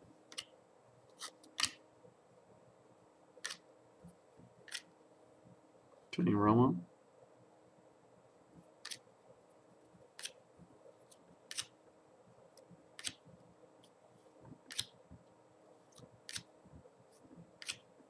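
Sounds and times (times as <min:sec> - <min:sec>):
trading cards snapping: 0:01.2 - 0:01.8, 0:04.7 - 0:04.9, 0:13.0 - 0:13.2, 0:16.2 - 0:16.5, 0:17.6 - 0:17.8.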